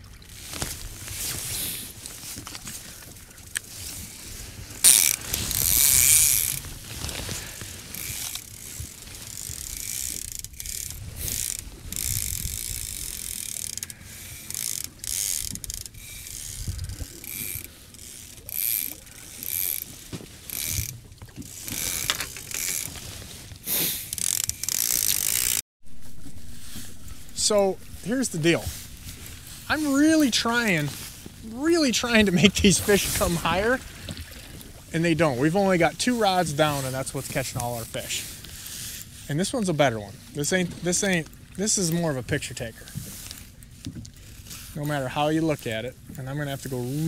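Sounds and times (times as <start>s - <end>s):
fishing reel clicker ratcheting: 4.8s - 6.7s, 7.9s - 20.9s, 21.5s - 22.9s, 23.9s - 25.6s.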